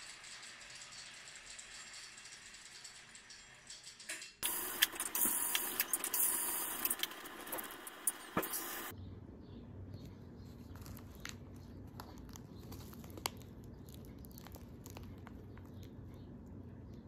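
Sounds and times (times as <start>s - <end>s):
plastic bag crinkling: 10.6s - 15.9s.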